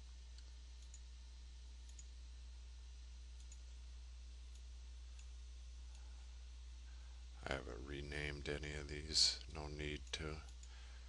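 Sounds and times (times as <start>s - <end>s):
low electrical hum: 0.0s - 11.0s
computer mouse clicks: 1.9s - 2.1s, 3.4s - 3.7s.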